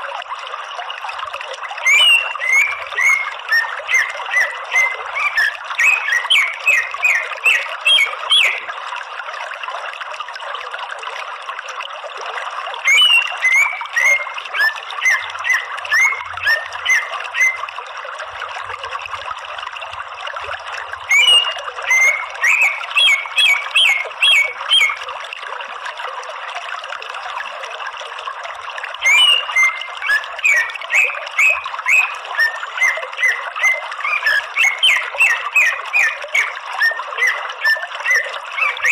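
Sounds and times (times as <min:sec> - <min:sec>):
bird calling sharp rapid notes: 0:01.8 - 0:08.7, 0:12.8 - 0:17.7, 0:21.1 - 0:25.0, 0:29.0 - 0:38.9.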